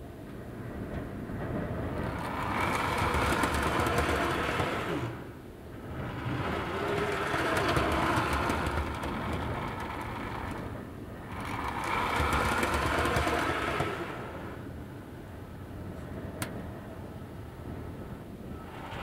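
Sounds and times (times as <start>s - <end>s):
model train wheels clicking: 2.1s - 14.7s.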